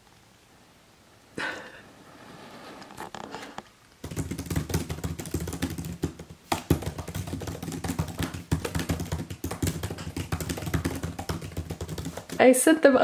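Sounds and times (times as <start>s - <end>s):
laptop keyboard typing: 4.0s - 12.4s.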